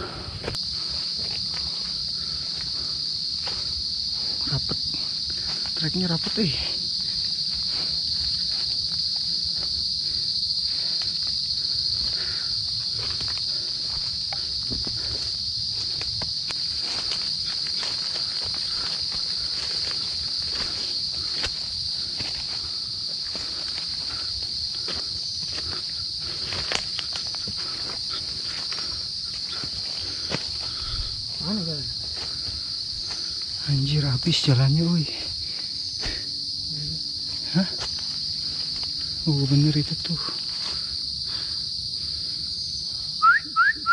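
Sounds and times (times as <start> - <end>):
rustling through undergrowth: 0.0 - 36.3, 37.0 - 42.8
footsteps in undergrowth: 0.0 - 43.1
insect chorus drone: 0.0 - 43.9.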